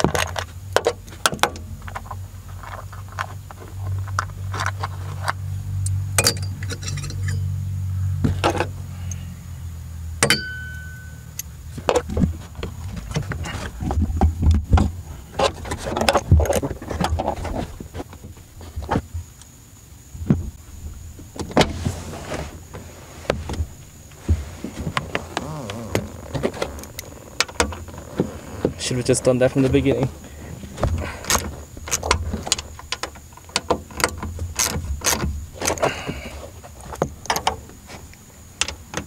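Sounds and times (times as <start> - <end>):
metallic ping: 6.2 - 7.6, 10.2 - 11.5.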